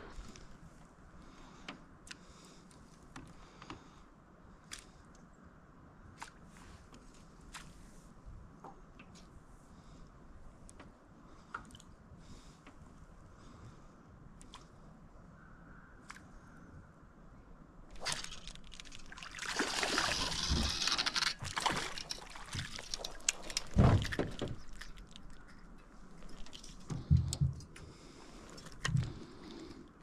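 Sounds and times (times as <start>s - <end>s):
fish splashing in water: 17.9s - 25.5s.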